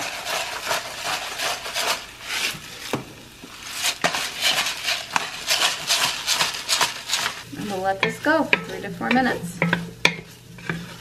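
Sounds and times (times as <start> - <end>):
pepper mill grinding: 3.7 - 11.0.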